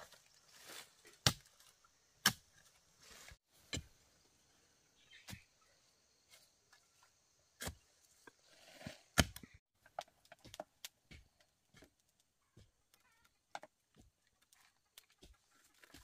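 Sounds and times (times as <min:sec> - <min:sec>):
leaves rustling: 0:00.0 - 0:01.9, 0:02.5 - 0:03.5.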